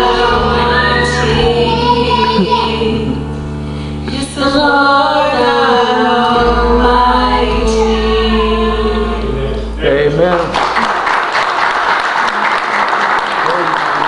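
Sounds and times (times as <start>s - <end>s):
boy singing: 0.0s - 3.2s, 4.1s - 9.7s
woman singing: 0.0s - 3.2s, 4.0s - 9.5s
instrumental accompaniment: 0.0s - 10.8s.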